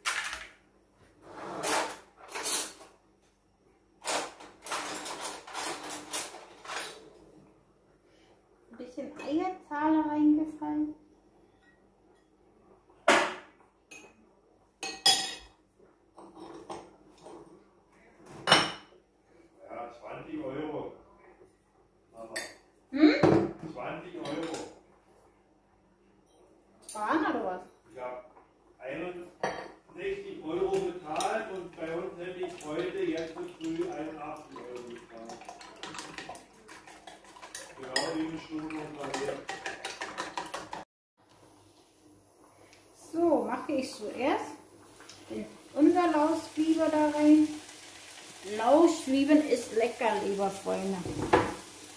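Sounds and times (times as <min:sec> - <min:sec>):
utensils clinking against bowl: 0:34.5 - 0:40.8.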